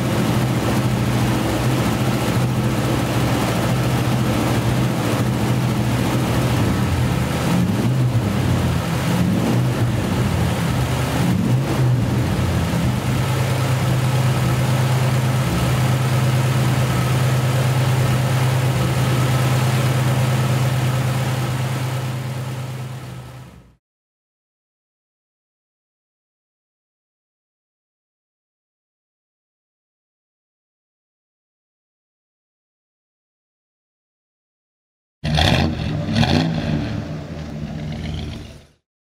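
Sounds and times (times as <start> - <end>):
car engine idling: 0.0 - 23.8, 35.4 - 38.8.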